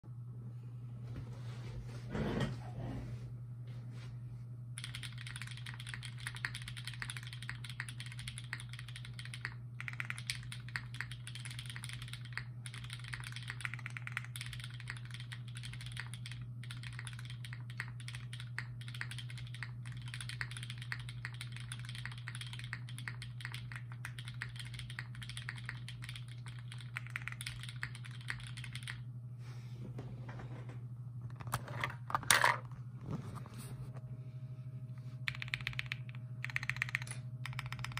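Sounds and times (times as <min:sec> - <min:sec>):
mechanical keyboard typing clacks: 0:04.8 - 0:29.0, 0:35.3 - 0:37.9.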